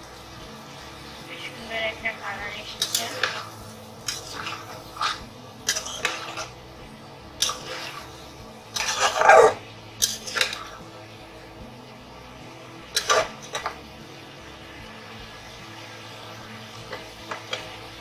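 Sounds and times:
spatula scraping steel pot: 2.8 - 6.6, 7.4 - 8.1, 8.7 - 10.8, 12.9 - 13.8.

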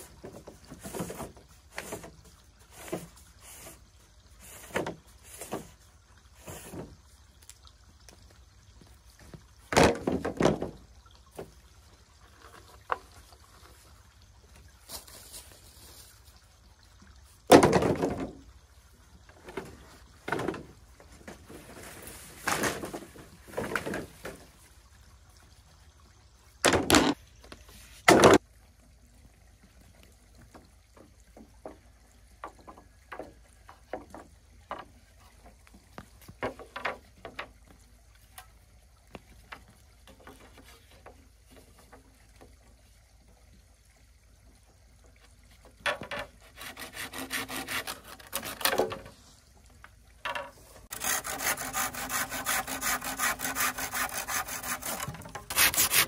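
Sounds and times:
bamboo poles knocking and clattering: 0.0 - 3.8, 4.4 - 5.8, 8.2 - 11.6, 12.3 - 13.4, 17.5 - 18.5, 19.3 - 24.6, 26.6 - 28.4, 30.4 - 42.5, 45.6 - 49.2, 49.8 - 56.0.

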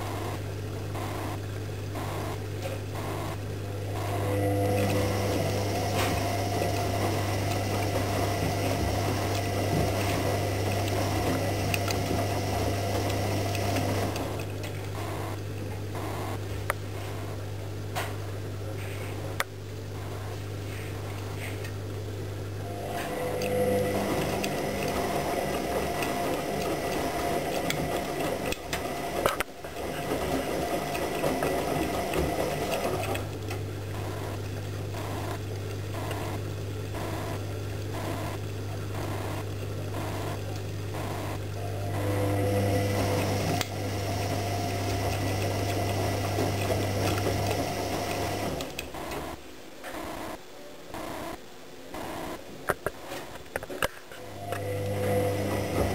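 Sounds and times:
washing machine drum motor humming: 3.4 - 15.2, 22.5 - 49.4, 54.2 - 55.9
washing machine knocking: 5.2 - 14.1, 29.9 - 33.2.

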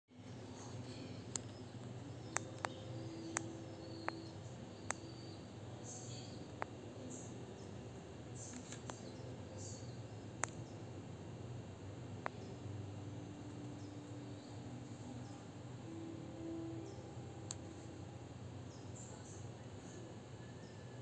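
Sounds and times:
steady low hum: 0.1 - 21.0
sharp clicks: 1.2 - 5.4, 8.4 - 10.8.

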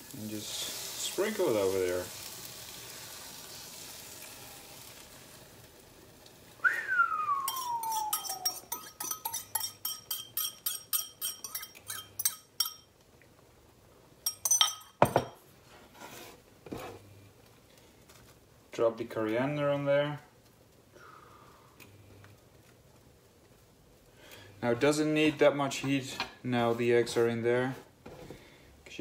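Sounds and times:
egg frying sizzle: 0.0 - 26.8
whisk clinking against ceramic bowl: 7.5 - 12.9.

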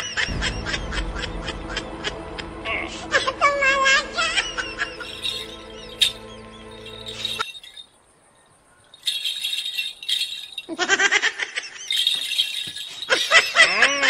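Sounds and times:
background music: 0.0 - 7.8
hand rattle shaken: 5.0 - 6.2, 6.8 - 7.8, 8.9 - 11.0, 11.9 - 14.0.

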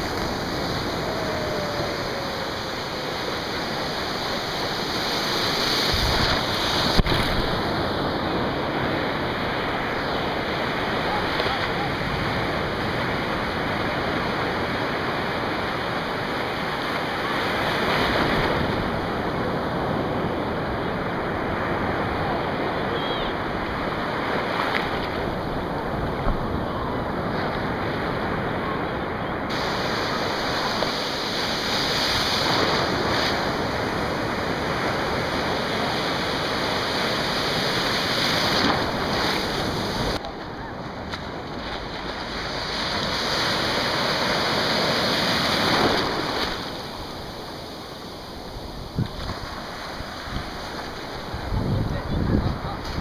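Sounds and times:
wind buffeting microphone: 0.0 - 14.6, 43.6 - 53.0
ocean surf breaking: 0.0 - 53.0.

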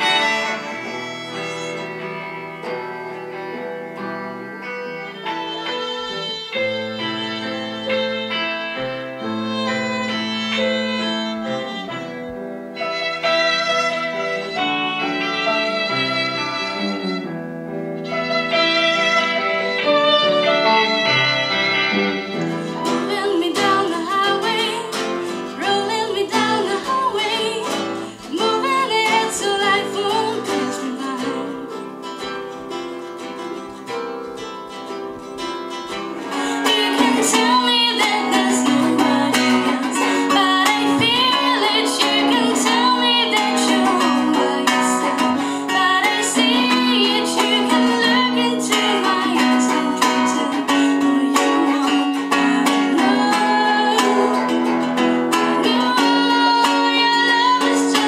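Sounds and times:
classical guitars plucking and strumming: 0.0 - 58.0
piano: 0.0 - 58.0
violin melody: 0.0 - 58.0.

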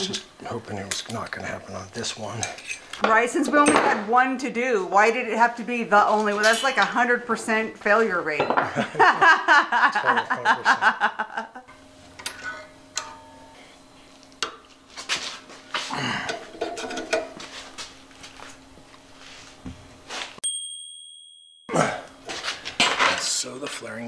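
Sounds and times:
man laughing: 8.7 - 11.7, 21.7 - 22.0.

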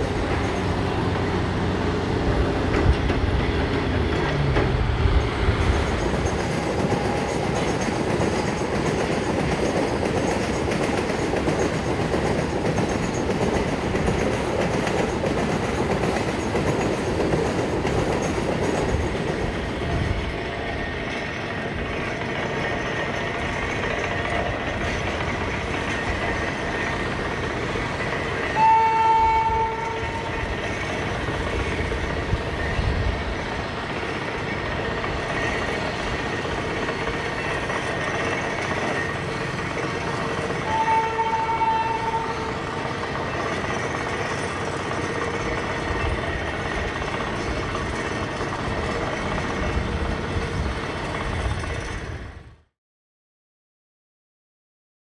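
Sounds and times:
train rolling rumble: 0.0 - 52.7
train horn blast: 28.5 - 30.3, 40.6 - 42.6.

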